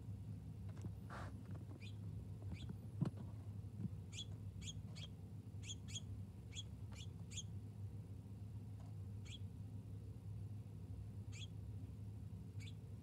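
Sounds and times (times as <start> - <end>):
songbird chirping: 4.1 - 7.5, 9.2 - 9.5, 11.3 - 11.6, 12.6 - 12.9.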